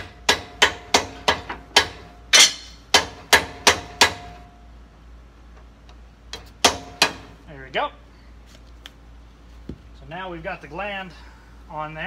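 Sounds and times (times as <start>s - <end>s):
hammer blows on metal: 0.0s - 4.4s.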